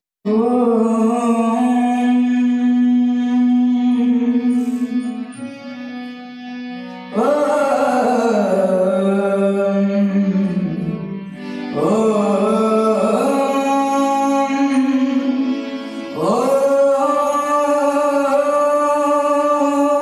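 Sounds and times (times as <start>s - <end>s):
musical accompaniment: 0.3s - 20.0s
devotional hymn singing: 11.4s - 20.0s.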